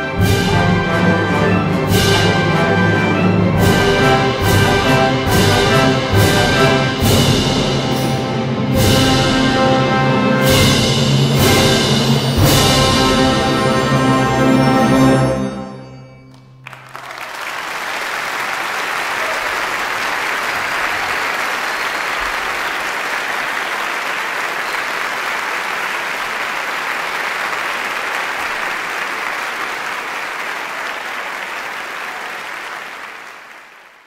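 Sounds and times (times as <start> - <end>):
audience applause: 16.3 - 34.0.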